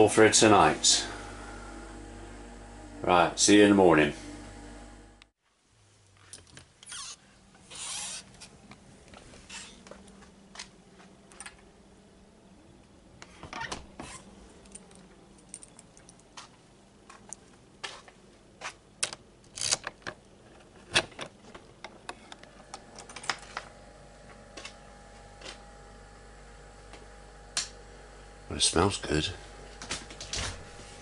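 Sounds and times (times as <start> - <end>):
faint steady hum: 0.0 - 7.7
keys rattling: 14.6 - 16.4.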